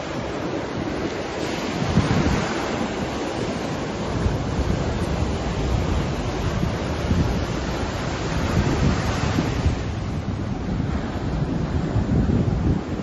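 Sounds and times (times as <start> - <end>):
ocean surf breaking on sand: 0.0 - 13.0
wind rumbling on microphone: 0.0 - 13.0.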